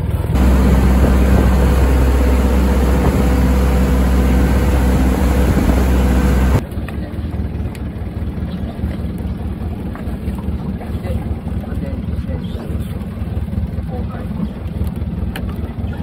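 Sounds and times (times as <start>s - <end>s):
boat engine humming: 0.0s - 6.6s.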